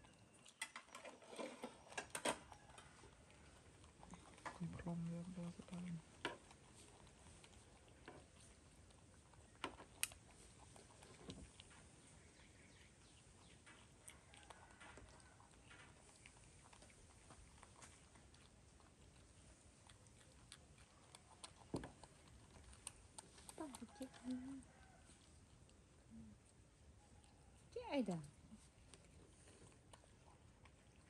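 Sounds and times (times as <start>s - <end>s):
faint clicks and taps: 20.5s - 24.4s.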